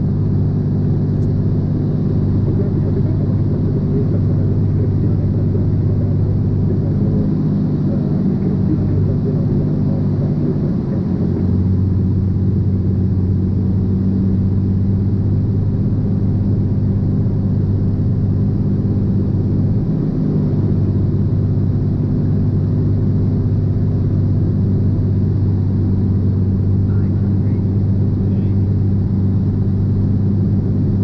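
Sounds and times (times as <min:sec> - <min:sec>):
propeller plane engine droning: 0:00.0 - 0:31.0.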